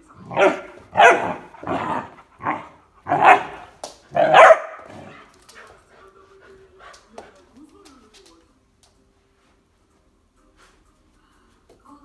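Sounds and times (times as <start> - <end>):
dog barking: 0.3 - 5.2.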